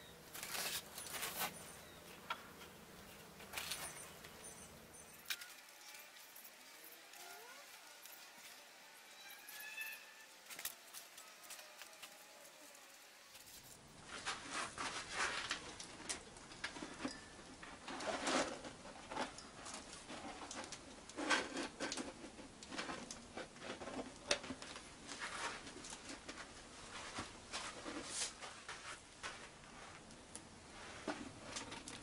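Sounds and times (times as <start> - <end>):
stiff sheet crinkling and rustling: 0.3 - 1.8, 3.4 - 4.4, 10.4 - 17.0, 17.6 - 30.1.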